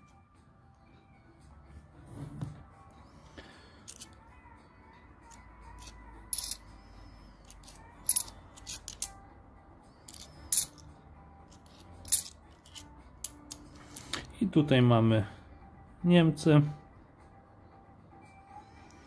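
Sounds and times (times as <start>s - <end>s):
coins clinking: 3.8s - 4.2s, 5.3s - 6.7s, 7.4s - 9.2s, 10.0s - 14.2s.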